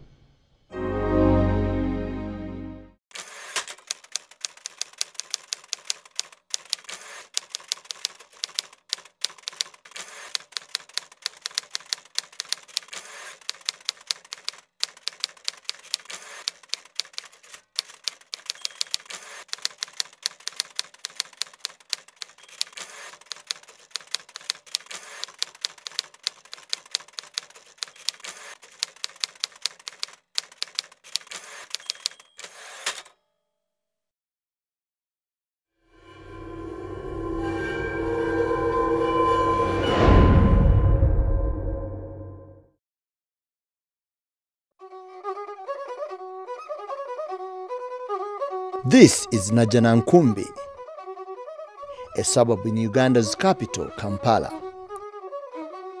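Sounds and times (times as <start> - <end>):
typewriter keys clacking: 3.6 - 33.0.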